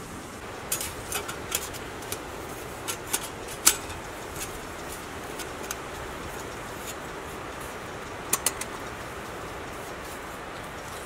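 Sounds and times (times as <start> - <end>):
steady background noise: 0.0 - 11.0
metal panels clicking together: 0.7 - 5.9, 8.3 - 8.8.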